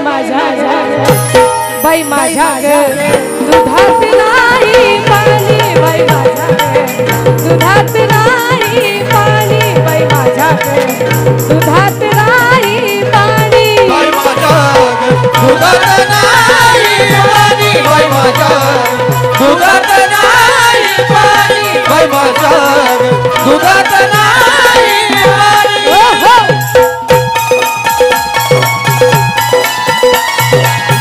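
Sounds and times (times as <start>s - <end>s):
hand percussion: 1.0s - 31.0s.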